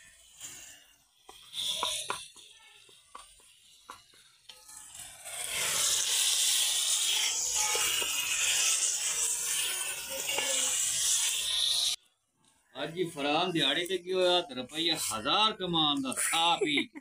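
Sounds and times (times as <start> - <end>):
food sizzling in a pot: 0.0 - 12.0.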